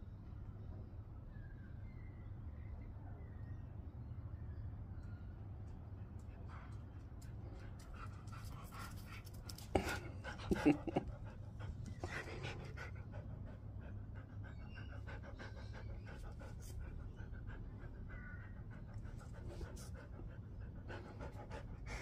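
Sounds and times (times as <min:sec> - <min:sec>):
dog panting: 0:06.0 - 0:22.0.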